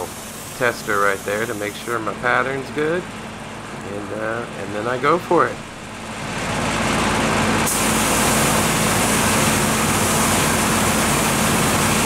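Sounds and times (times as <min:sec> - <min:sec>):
paint spray gun hissing: 0:00.0 - 0:02.0, 0:07.7 - 0:12.0
motor hum: 0:00.0 - 0:12.0.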